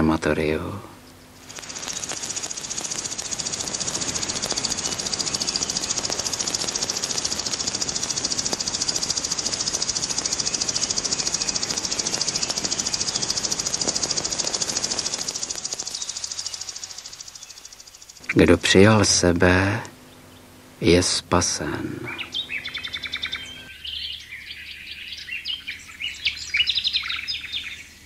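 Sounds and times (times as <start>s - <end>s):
pulsing high hissing rattle: 1.3s - 23.7s.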